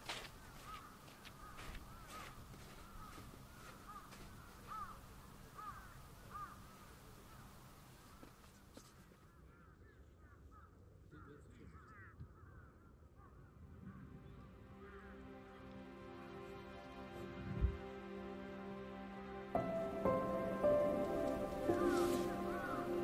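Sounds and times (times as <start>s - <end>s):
background hiss: 0.0s - 9.3s, 15.2s - 23.0s
faint bird calls: 0.4s - 15.2s, 19.8s - 23.0s.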